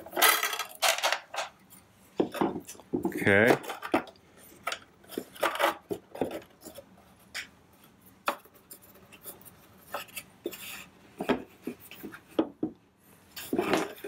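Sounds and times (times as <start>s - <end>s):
plastic and metal parts rattling: 0.0s - 1.5s, 3.3s - 6.8s.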